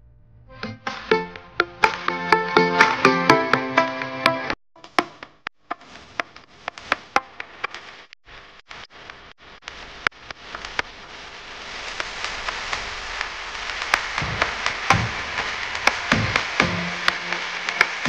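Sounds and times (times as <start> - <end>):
sharp clicks and taps: 0.8 - 7.8
faint hiss: 5.8 - 18.0.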